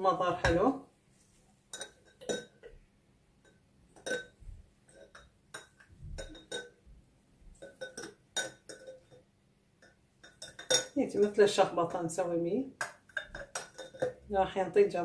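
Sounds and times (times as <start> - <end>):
glass clinking and tapping: 1.7 - 2.8, 3.4 - 6.9, 7.5 - 11.0, 12.8 - 14.3.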